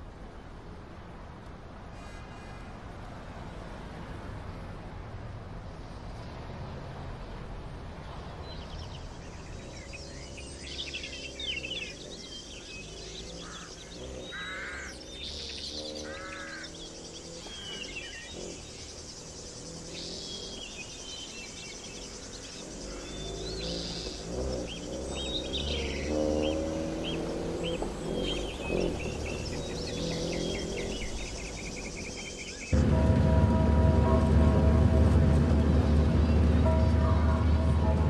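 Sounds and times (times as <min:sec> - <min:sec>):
car engine rumble: 0:03.1 - 0:38.0
birds chirping and trilling: 0:08.3 - 0:32.9.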